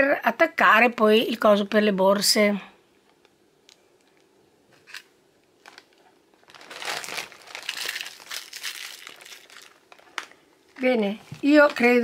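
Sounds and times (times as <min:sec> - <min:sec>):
plastic bag crinkling: 0:04.0 - 0:11.0.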